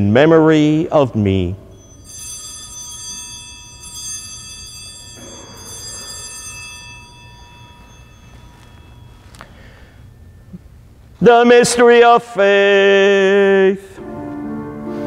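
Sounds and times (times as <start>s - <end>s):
altar bell ringing: 1.6s - 11.1s.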